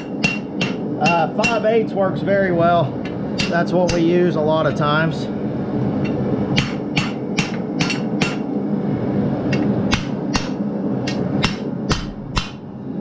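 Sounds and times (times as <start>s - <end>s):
hammer striking steel on anvil: 0.0s - 1.7s, 3.0s - 4.1s, 6.0s - 8.5s, 9.5s - 12.7s.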